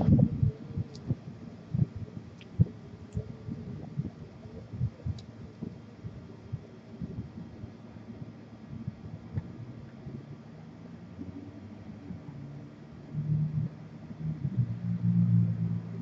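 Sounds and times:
dull low thumps: 0.0 - 7.5.

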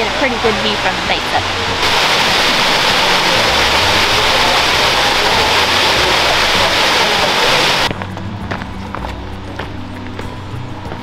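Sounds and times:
waterfall rushing: 0.0 - 7.9.

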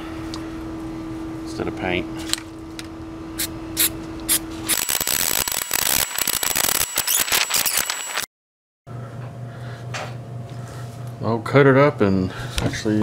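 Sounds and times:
sharp clicks: 4.7 - 8.3.

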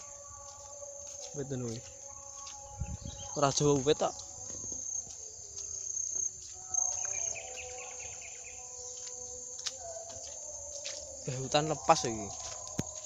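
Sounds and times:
insects droning: 0.0 - 13.0
bird chirps: 1.6 - 4.4, 6.6 - 9.2.

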